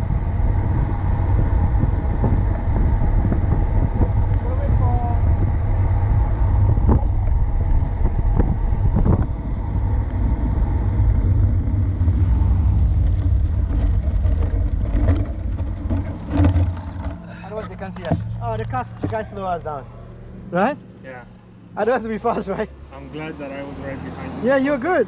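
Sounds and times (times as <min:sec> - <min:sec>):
wind buffeting microphone: 0:00.0 - 0:19.5
tyre and road noise: 0:00.0 - 0:25.0
knocks from bumps: 0:12.9 - 0:19.4.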